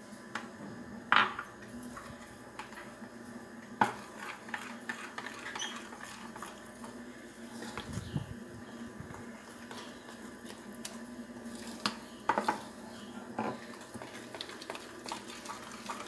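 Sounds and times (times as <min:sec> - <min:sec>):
spoon scraping in glass bowl: 0:04.2 - 0:06.5.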